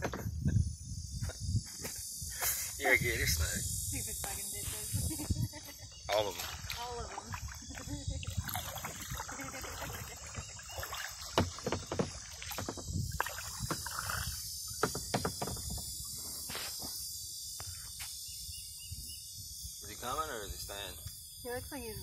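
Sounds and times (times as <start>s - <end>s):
high insect buzz: 0.0s - 22.0s
paddle splashing water: 6.1s - 15.6s
paddle knocking against hull: 8.4s - 14.2s, 14.8s - 15.8s.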